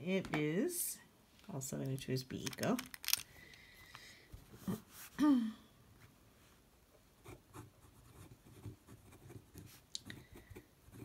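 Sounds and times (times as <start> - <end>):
pen nib scratching paper: 7.3 - 11.0.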